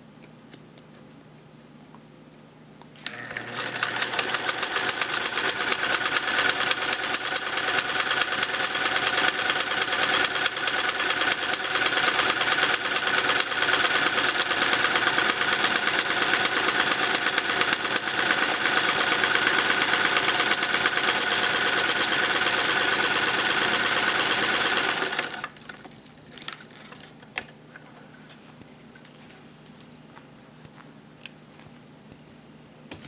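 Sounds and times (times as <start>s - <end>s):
sewing machine stitching: 3.0s - 25.6s.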